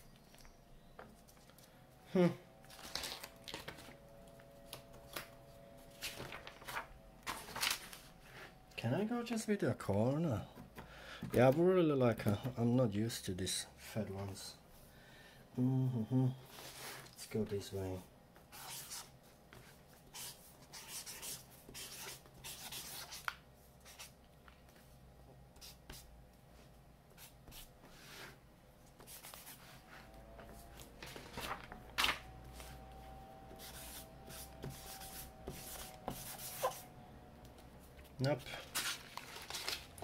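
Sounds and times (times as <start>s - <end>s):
marker scraping on paper: 18.5s - 19.1s, 20.1s - 23.2s, 33.6s - 36.9s.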